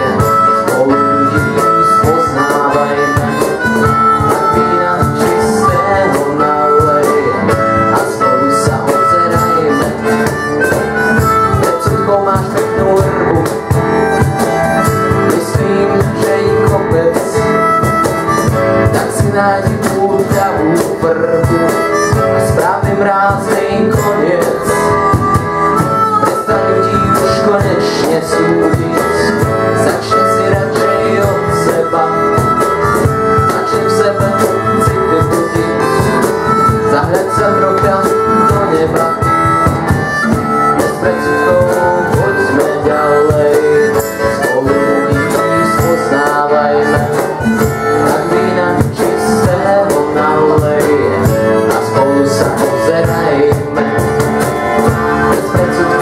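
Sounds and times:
harmonica with bent notes: 0.0s - 56.0s
strummed acoustic guitar: 0.0s - 56.0s.

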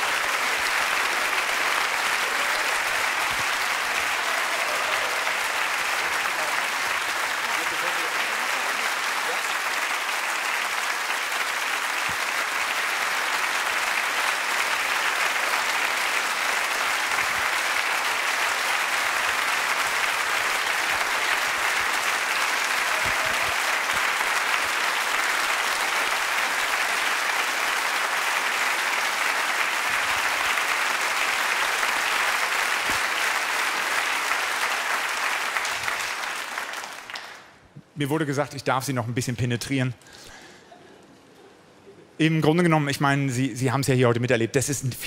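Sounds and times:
audience applause: 0.0s - 37.6s.

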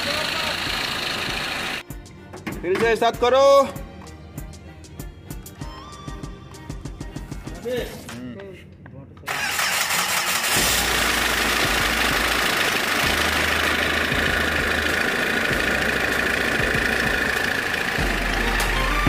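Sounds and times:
diesel engine idling: 0.0s - 1.8s, 9.3s - 19.0s.

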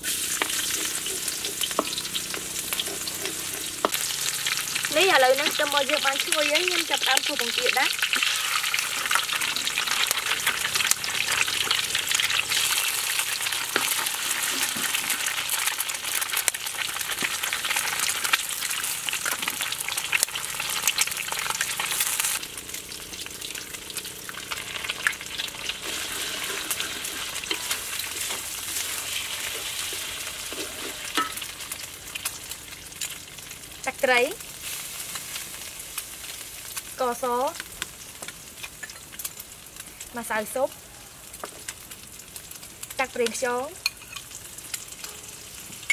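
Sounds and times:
egg sizzling in hot oil: 0.0s - 45.9s
wooden spatula stirring: 25.6s - 31.4s.

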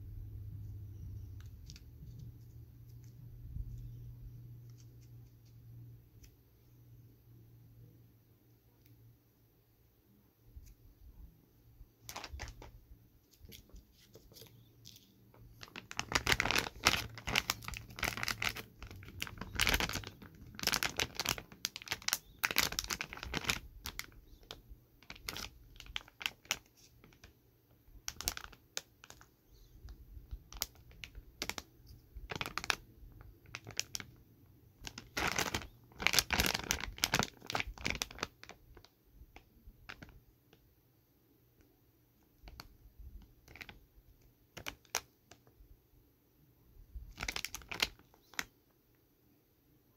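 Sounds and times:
plastic snack bag crinkling: 1.1s - 3.9s, 12.0s - 27.3s, 28.0s - 29.7s, 30.4s - 34.2s, 34.8s - 39.0s, 42.4s - 45.5s, 47.0s - 48.5s.

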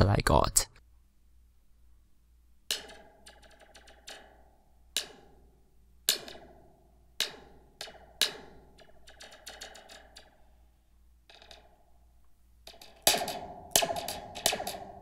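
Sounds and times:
pen tapping metal spring: 2.7s - 10.6s, 11.3s - 11.9s, 12.6s - 15.0s.

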